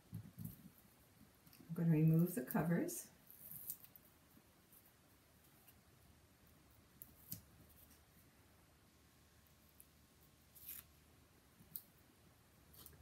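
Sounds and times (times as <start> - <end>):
tape backing scratching and crinkling: 3.2 - 5.8, 6.9 - 8.1, 9.8 - 11.0, 12.7 - 13.0.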